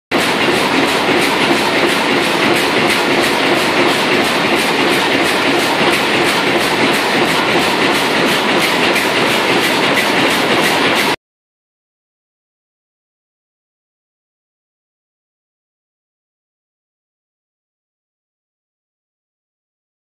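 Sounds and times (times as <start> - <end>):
bag making machine clattering: 0.1 - 11.2.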